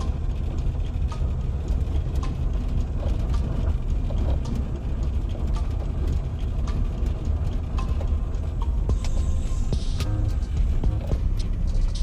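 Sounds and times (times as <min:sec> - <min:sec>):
small rattles and knocks: 0:00.0 - 0:09.4
vehicle rumbling on dirt road: 0:00.0 - 0:12.0.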